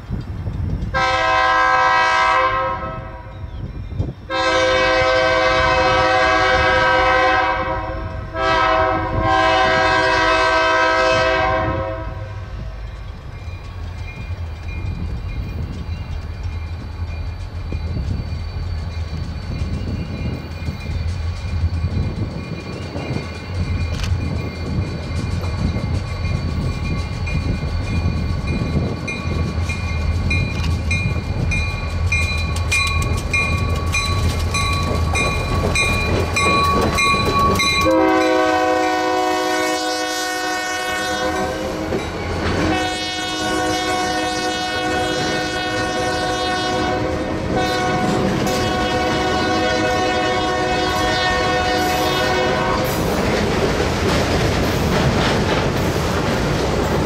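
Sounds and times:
diesel locomotive engine rumbling: 0.0s - 57.0s
train air horn blasts: 0.9s - 3.3s, 4.3s - 12.6s, 37.8s - 42.0s, 42.6s - 53.1s
locomotive bell ringing: 12.4s - 39.8s, 41.0s - 45.3s
freight cars clickety-clack: 12.8s - 38.3s, 41.4s - 42.9s, 51.8s - 57.0s.

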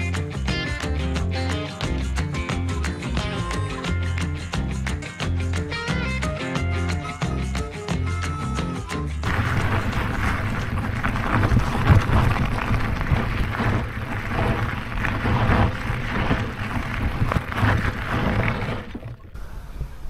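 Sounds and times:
tyres crunching on gravel: 9.2s - 19.2s
wind buffeting microphone: 9.3s - 20.0s.

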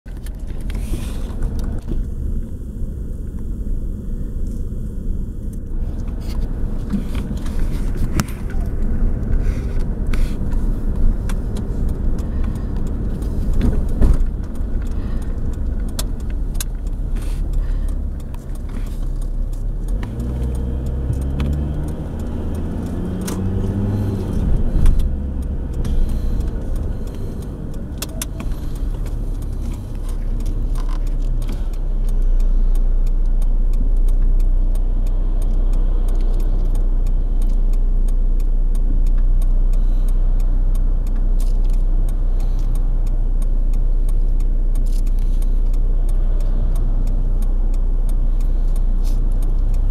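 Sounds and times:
car engine and road rumble: 0.0s - 49.9s
light rattles and clicks: 0.1s - 2.6s, 4.6s - 49.9s.

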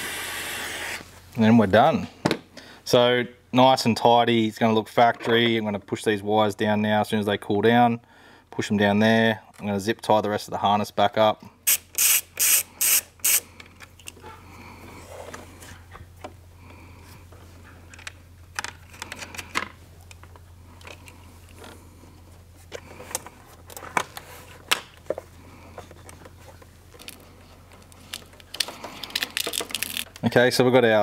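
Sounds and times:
steady low hum: 0.0s - 31.0s
hands clicking and rustling wiring: 25.9s - 30.4s.

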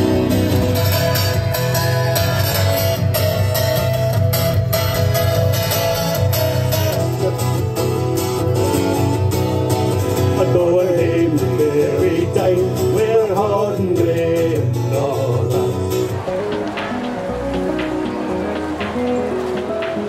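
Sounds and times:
acoustic guitars strummed: 0.0s - 20.0s
men singing together: 10.4s - 15.8s.

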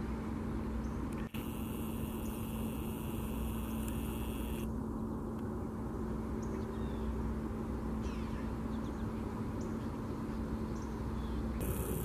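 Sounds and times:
low hum and rumble: 0.0s - 12.0s
faint bird chirps: 8.0s - 12.0s
high hiss: 11.6s - 12.0s.

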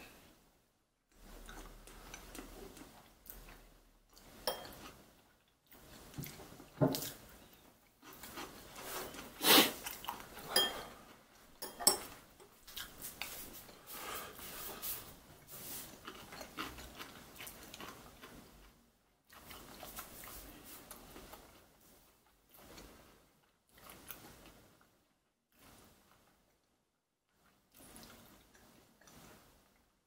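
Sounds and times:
wet chewing: 1.2s - 11.5s, 15.4s - 21.7s.

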